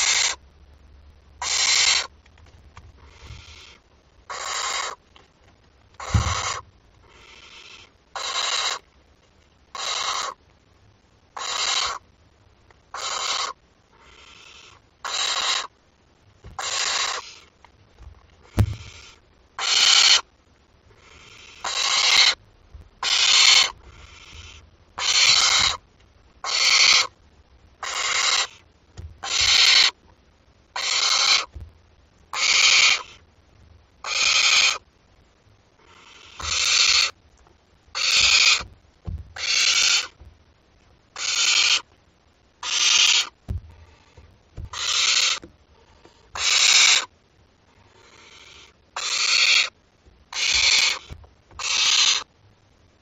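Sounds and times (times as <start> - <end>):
owl chicks hissing calls: 0.0 - 0.4, 1.4 - 2.1, 3.0 - 5.0, 6.0 - 8.9, 9.7 - 10.4, 11.4 - 12.1, 12.9 - 15.8, 16.5 - 17.6, 18.4 - 20.3, 20.9 - 22.4, 23.0 - 25.8, 26.4 - 27.2, 27.8 - 30.0, 30.7 - 31.6, 32.3 - 33.3, 34.0 - 34.9, 35.8 - 37.2, 37.9 - 40.2, 41.1 - 41.9, 42.6 - 52.3.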